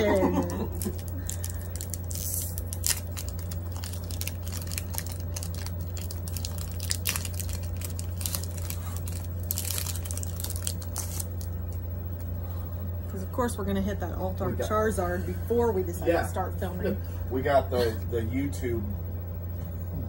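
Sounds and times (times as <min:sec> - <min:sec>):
foil wrapper crinkling and tearing: 0:00.6 - 0:11.6.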